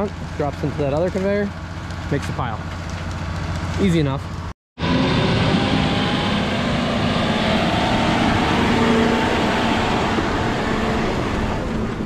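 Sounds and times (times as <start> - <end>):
tractor diesel engine passing: 4.3 - 12.0.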